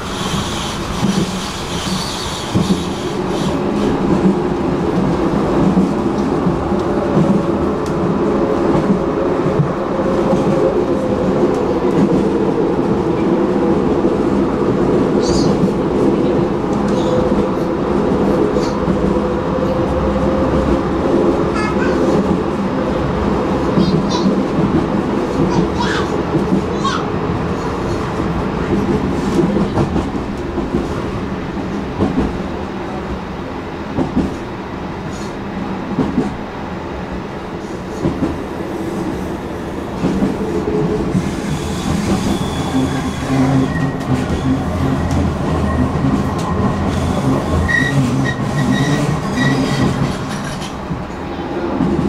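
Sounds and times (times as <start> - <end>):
tram wheels and motors rumbling: 0.0 - 52.0
faint high wheel squeal: 41.5 - 44.6.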